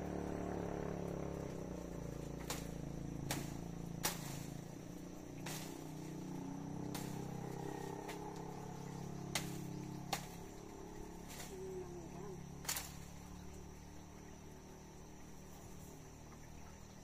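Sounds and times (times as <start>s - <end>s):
steady low hum: 0.0s - 17.0s
branches snipping and cracking: 1.0s - 11.8s, 12.6s - 13.6s.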